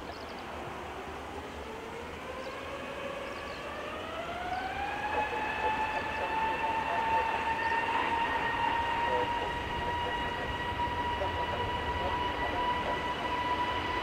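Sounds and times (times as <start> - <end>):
jet engines spooling up: 0.5 - 14.0.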